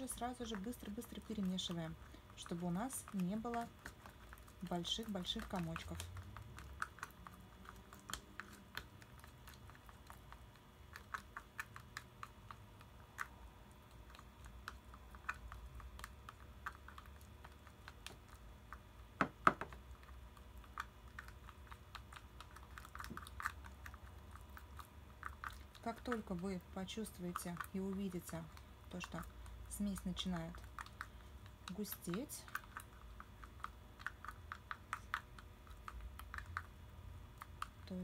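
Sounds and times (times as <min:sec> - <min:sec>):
spatula tapping plastic jar: 0:18.7 - 0:19.9.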